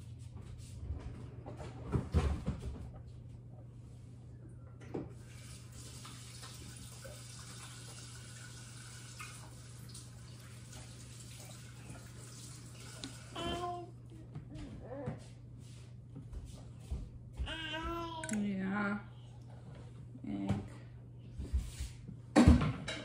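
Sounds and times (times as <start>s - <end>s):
kitchen tap running into sink: 5.2s - 13.3s
steady low hum: 13.0s - 22.4s.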